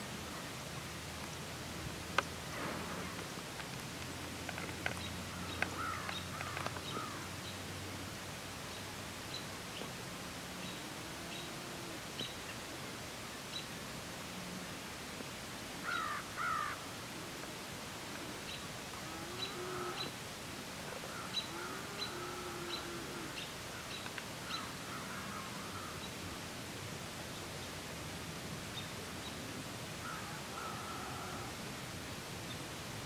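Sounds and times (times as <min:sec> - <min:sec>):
birds calling: 0:04.5 - 0:07.6, 0:15.8 - 0:16.8, 0:20.9 - 0:26.2.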